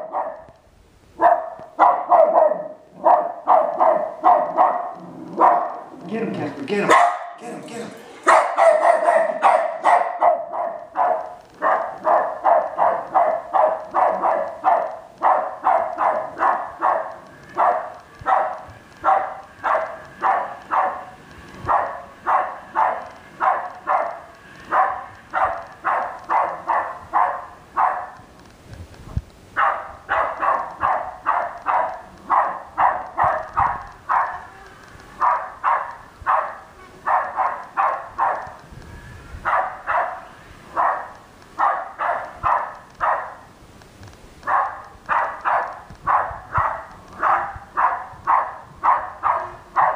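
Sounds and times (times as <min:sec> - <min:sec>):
dog barking: 0:00.0 - 0:00.5, 0:01.2 - 0:06.0, 0:06.9 - 0:07.4, 0:08.2 - 0:28.2, 0:29.6 - 0:34.5, 0:35.2 - 0:38.6, 0:39.4 - 0:43.5, 0:44.4 - 0:49.9.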